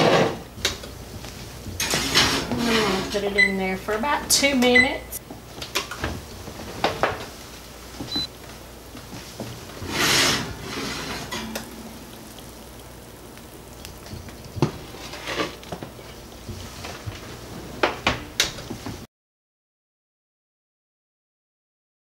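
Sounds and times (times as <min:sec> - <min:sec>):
skillet scraping on wire rack: 0:01.8 - 0:03.3, 0:09.7 - 0:12.8, 0:13.7 - 0:18.0.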